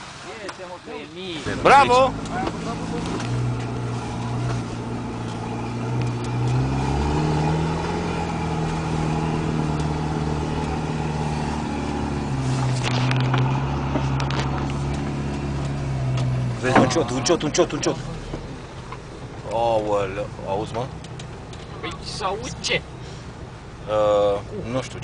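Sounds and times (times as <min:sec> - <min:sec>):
engine running under load: 0:01.4 - 0:19.3.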